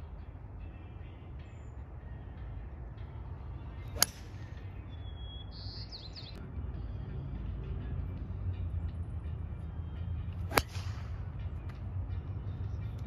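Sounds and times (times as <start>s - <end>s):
golf iron striking ball: 3.8s - 4.6s, 10.4s - 11.3s.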